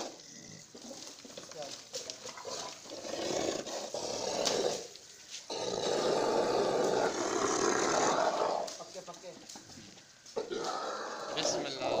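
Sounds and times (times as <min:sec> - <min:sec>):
bull groaning: 0:00.0 - 0:01.4, 0:02.2 - 0:04.9, 0:05.5 - 0:08.8, 0:10.4 - 0:12.0.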